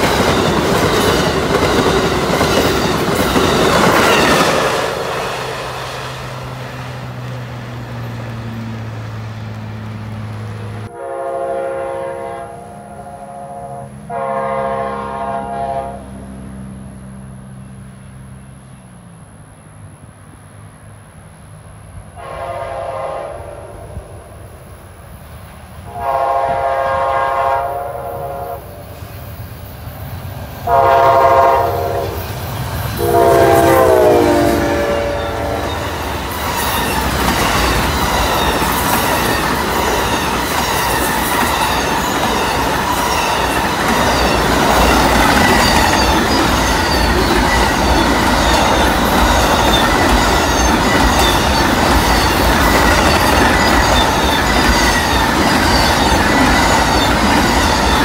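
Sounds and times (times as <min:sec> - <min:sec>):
train cars rumbling and clattering: 0:00.0 - 0:12.8, 0:13.9 - 0:58.0
locomotive horn blasts: 0:10.9 - 0:16.2, 0:22.2 - 0:23.8, 0:25.9 - 0:28.9, 0:30.6 - 0:32.3, 0:33.0 - 0:35.9.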